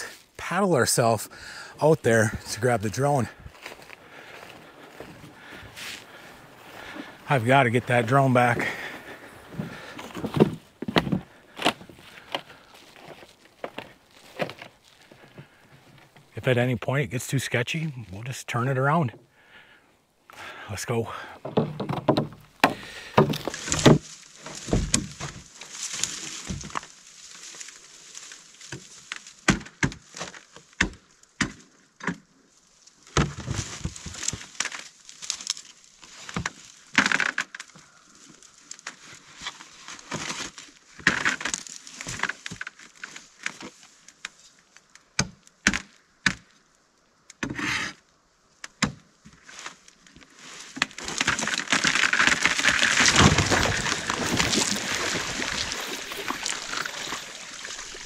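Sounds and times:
pole jabbing ice: 50.8s - 58.0s
sled scraping over ice: 51.0s - 58.0s.

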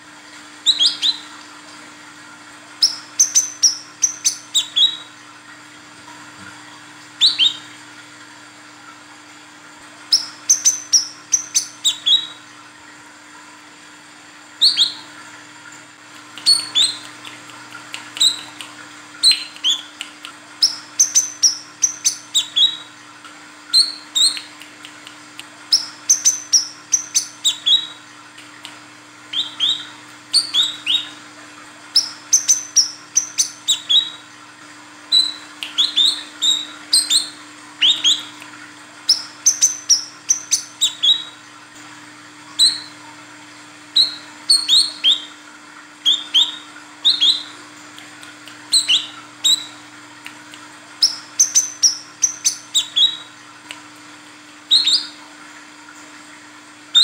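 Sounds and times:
faint low hum: 0.2s - 45.4s.

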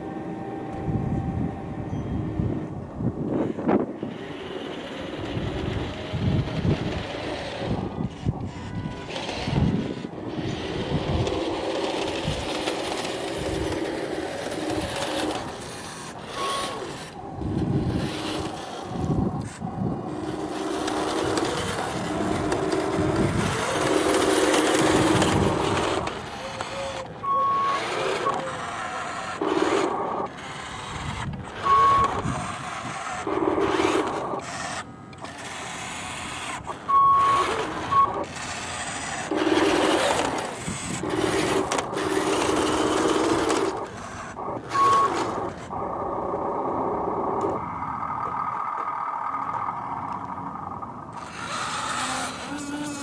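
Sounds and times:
toy truck driving over gravel: 2.6s - 53.0s
short high beeps: 27.2s - 28.4s, 31.6s - 32.4s, 36.9s - 38.2s, 44.7s - 45.2s.

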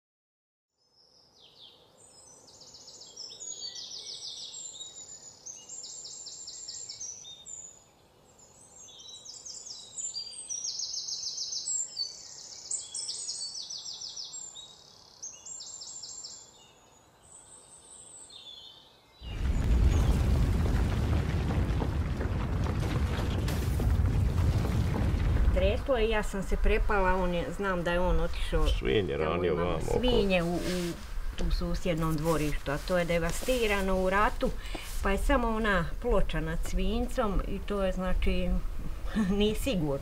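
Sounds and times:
faint steady hiss: 25.4s - 40.0s.

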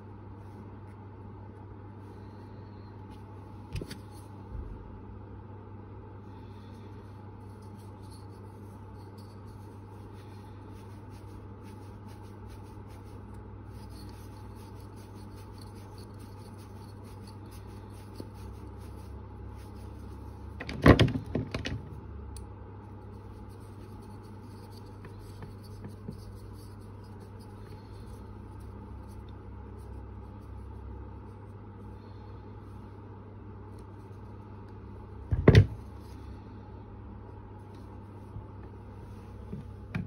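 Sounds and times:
low workshop hum: 0.0s - 40.0s
hands rubbing wood: 7.4s - 20.5s, 23.1s - 30.5s.

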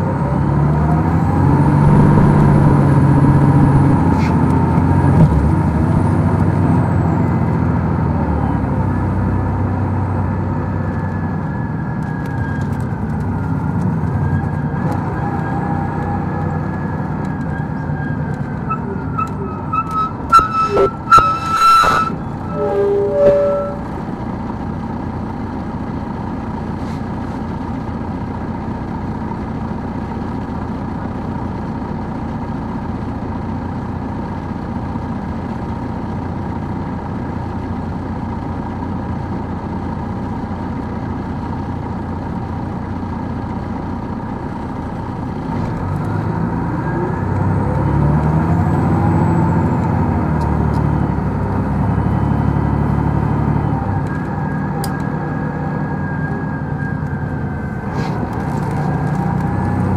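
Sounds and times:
engine whine: 0.0s - 27.0s, 40.7s - 59.9s
bus engine running: 0.0s - 59.9s.

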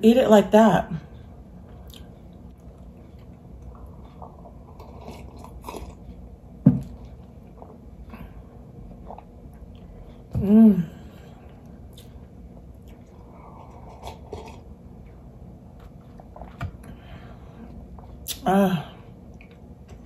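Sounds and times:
soft chewing: 1.1s - 10.4s, 11.1s - 18.4s, 19.0s - 20.0s.

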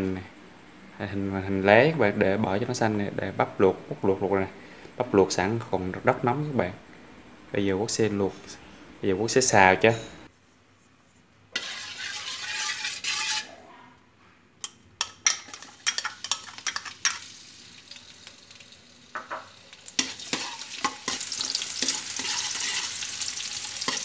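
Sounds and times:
metal spatula scraping a wok: 11.5s - 13.6s, 15.0s - 17.3s, 19.9s - 24.0s
shallots sizzling in hot oil: 11.6s - 13.5s, 15.0s - 24.0s.

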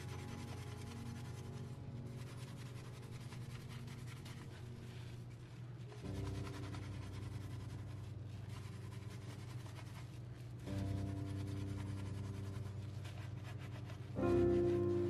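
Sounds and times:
steady low hum: 0.0s - 15.0s
sponge scrubbing metal grate: 6.0s - 15.0s.

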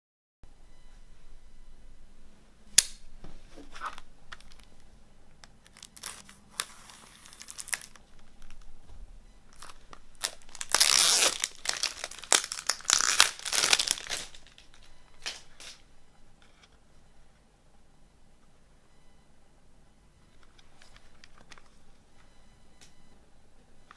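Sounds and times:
plastic wrap crinkling: 3.6s - 4.8s, 5.4s - 8.8s, 9.5s - 15.8s
knife slitting shrink wrap: 5.7s - 8.0s, 9.6s - 14.6s.

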